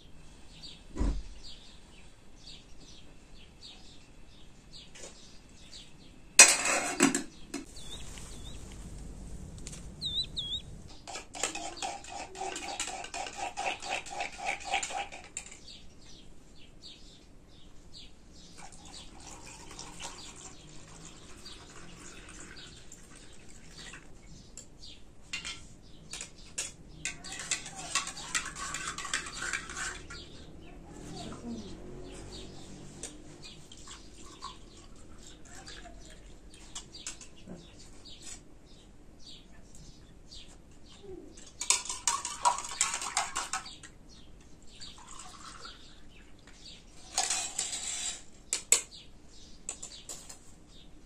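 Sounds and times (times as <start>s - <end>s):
birds chirping: 0.0s - 6.4s, 7.0s - 12.8s, 15.4s - 51.0s
dishes and utensils clattering: 6.4s - 8.5s, 10.0s - 15.6s, 25.2s - 30.4s, 41.4s - 43.9s, 47.0s - 48.8s
liquid pouring into metal cup: 18.6s - 24.1s, 45.0s - 45.8s.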